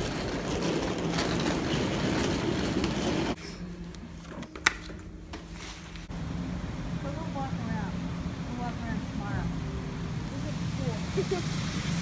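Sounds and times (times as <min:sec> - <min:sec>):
cart wheels rattling on floor: 0:00.0 - 0:03.4.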